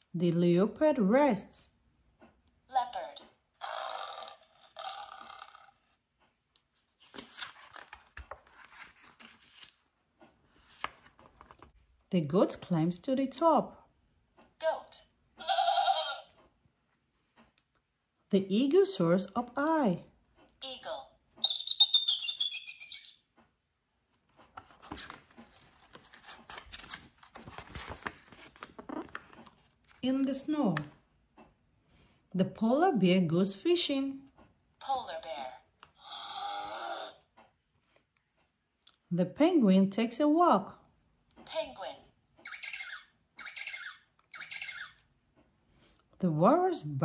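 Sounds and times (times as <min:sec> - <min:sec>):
book page turning: 0:06.7 - 0:11.8, 0:24.3 - 0:30.9.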